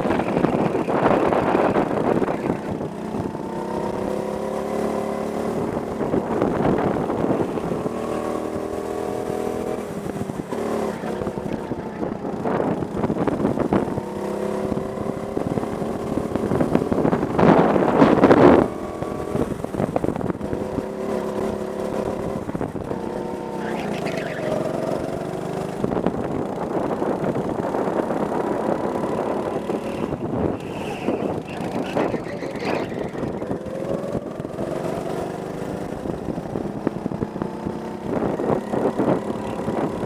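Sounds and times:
go-kart engine accelerating: 0:00.0 - 0:40.0
wind buffeting microphone: 0:00.0 - 0:40.0.

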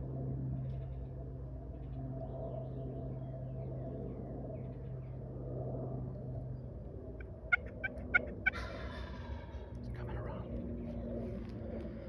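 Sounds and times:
turkey gobbling: 0:07.2 - 0:09.6.

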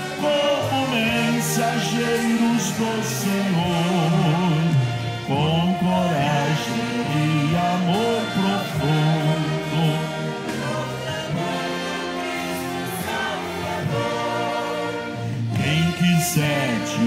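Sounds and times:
man singing: 0:00.0 - 0:10.4, 0:15.5 - 0:17.0
orchestra playing a hymn: 0:00.0 - 0:17.0.

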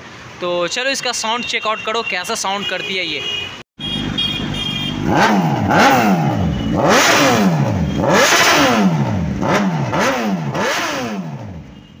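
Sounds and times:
motorcycle engine revving: 0:03.9 - 0:11.9.

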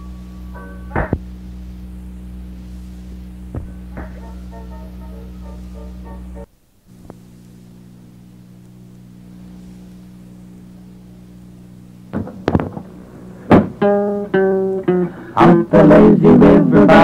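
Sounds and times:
tape hum: 0:00.0 - 0:17.0
guitar plucked and strummed: 0:03.6 - 0:06.5, 0:12.2 - 0:17.0.

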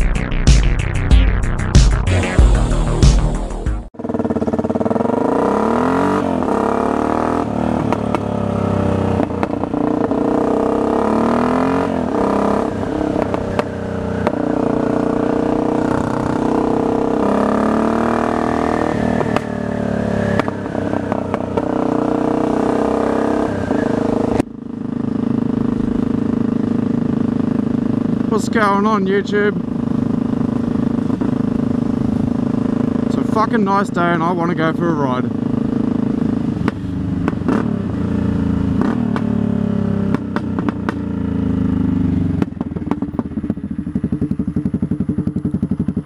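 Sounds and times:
motorcycle engine accelerating: 0:00.0 - 0:46.0.

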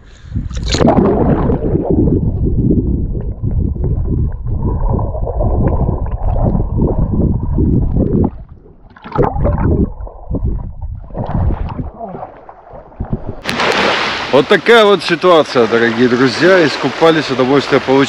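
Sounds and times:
muffled underwater water rushing: 0:00.4 - 0:18.0
bubbling burst: 0:00.6 - 0:12.3, 0:13.0 - 0:14.6.

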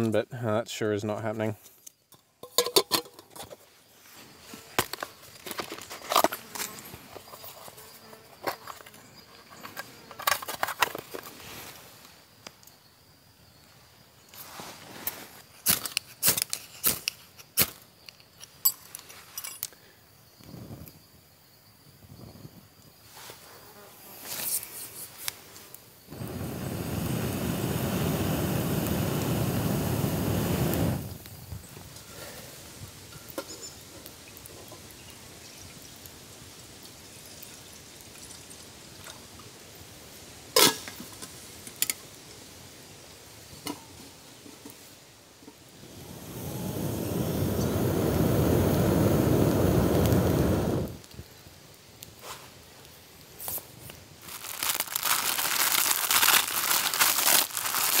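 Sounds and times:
light metal clinks: 0:18.0 - 0:19.8, 0:33.1 - 0:33.9.

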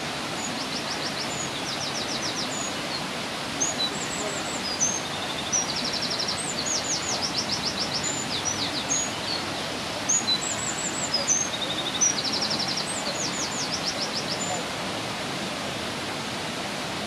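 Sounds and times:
waterfall rushing: 0:00.0 - 0:17.0
bird singing rapid trills: 0:03.6 - 0:09.5, 0:10.1 - 0:14.6.

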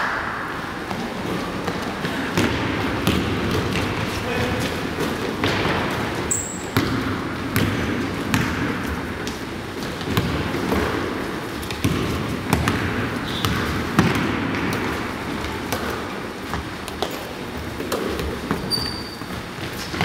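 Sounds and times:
basketball bouncing on hardwood: 0:02.4 - 0:04.0, 0:06.6 - 0:08.9, 0:10.0 - 0:10.9, 0:11.7 - 0:14.9
sneaker squeak: 0:06.3 - 0:06.8, 0:13.2 - 0:13.7, 0:18.5 - 0:20.0.

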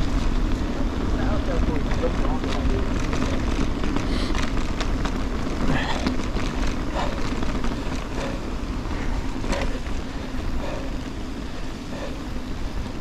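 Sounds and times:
bike clicks and rattles: 0:00.0 - 0:13.0
tyre rumble on gravel: 0:01.1 - 0:10.8.

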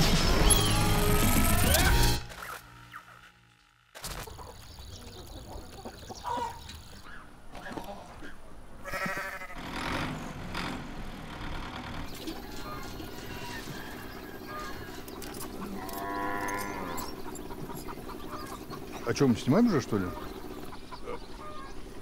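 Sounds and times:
farmyard ambience: 0:00.5 - 0:22.0
goat bleating: 0:08.8 - 0:09.6.

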